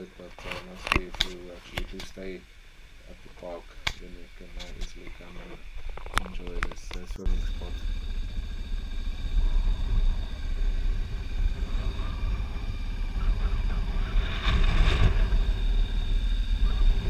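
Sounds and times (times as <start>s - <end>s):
motorcycle engine rumble: 0.0s - 17.0s
wind buffeting microphone: 4.6s - 17.0s.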